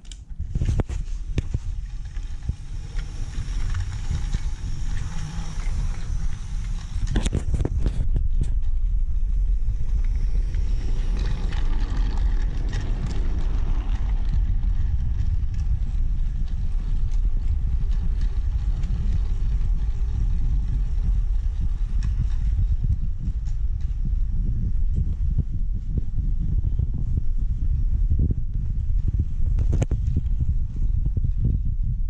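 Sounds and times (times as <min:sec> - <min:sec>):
toy train motor rumble: 0:00.0 - 0:23.9
wheels clicking over track joints: 0:00.0 - 0:24.1.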